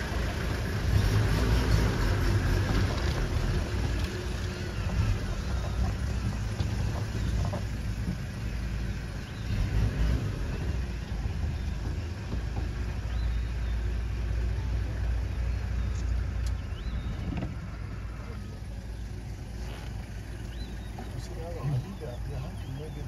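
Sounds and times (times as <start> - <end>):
vehicles idling rumble: 0.0 - 23.0.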